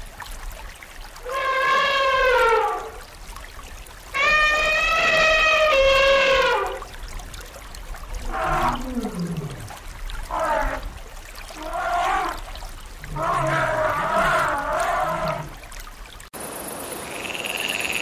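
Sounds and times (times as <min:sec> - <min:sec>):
elephant calling: 0:01.2 - 0:03.0, 0:04.2 - 0:06.8, 0:13.1 - 0:15.5.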